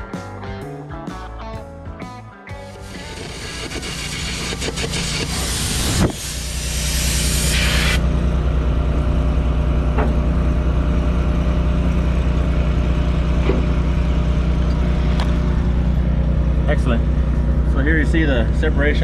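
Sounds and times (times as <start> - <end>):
arc and air jet hissing: 2.6 - 8.0
engine droning: 2.6 - 19.0.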